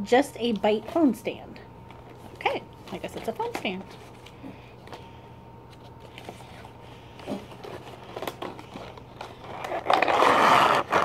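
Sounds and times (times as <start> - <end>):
plastic packaging crinkling: 5.8 - 11.0.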